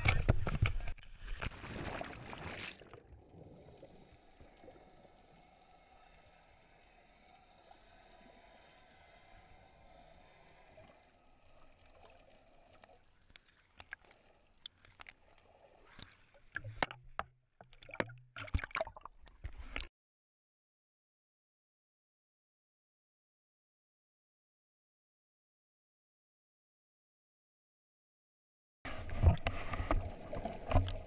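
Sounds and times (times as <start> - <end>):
water splashing: 0.0 - 5.1, 6.1 - 19.9, 28.9 - 31.0
dull underwater hush: 0.0 - 19.9, 28.9 - 31.0.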